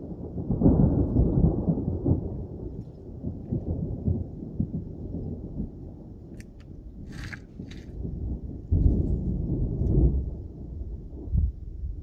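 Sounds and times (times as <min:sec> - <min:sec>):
rolling thunder: 0:00.0 - 0:12.0.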